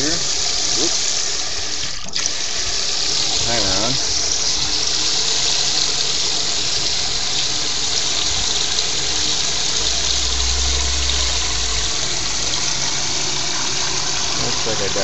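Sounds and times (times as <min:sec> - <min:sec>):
aerator pump spraying water: 0:00.0 - 0:15.0.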